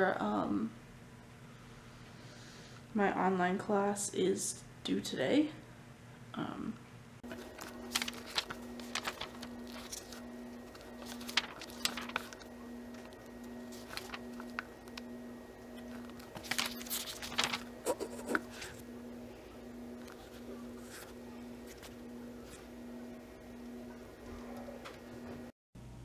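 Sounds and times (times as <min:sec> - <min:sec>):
faint throbbing low hum: 0:00.0 - 0:26.0
book pages turning: 0:07.2 - 0:25.4.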